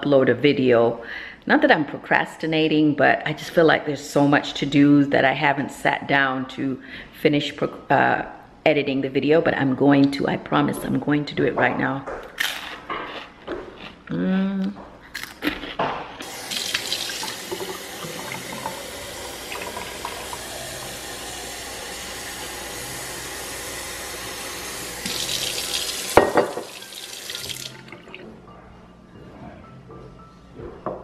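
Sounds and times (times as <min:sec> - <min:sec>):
tap water running into sink: 0:16.2 - 0:28.2.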